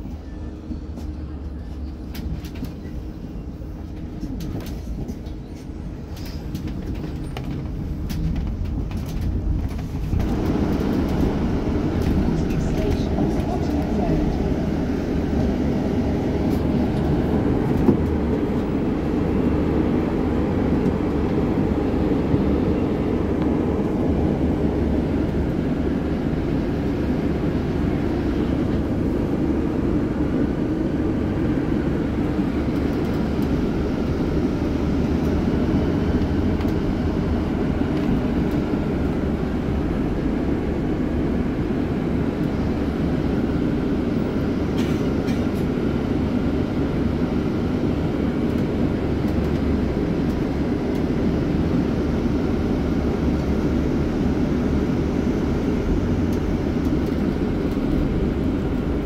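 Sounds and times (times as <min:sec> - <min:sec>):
bus engine rumbling: 0:00.0 - 0:59.0.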